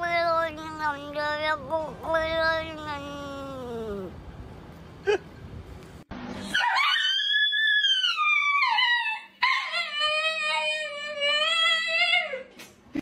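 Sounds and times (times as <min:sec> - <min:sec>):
dogs howling: 0:06.5 - 0:12.3.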